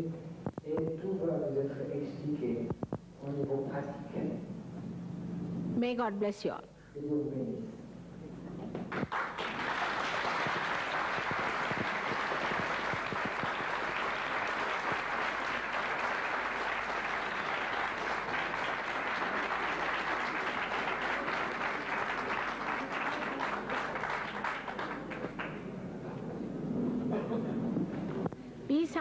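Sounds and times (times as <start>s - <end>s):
audience applauding: 8.8s - 25.8s.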